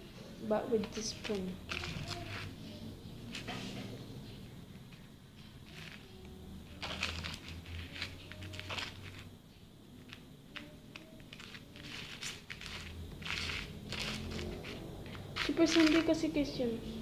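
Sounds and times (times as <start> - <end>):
spoon stirring gritty slime: 0.8 - 9.4, 10.0 - 16.4.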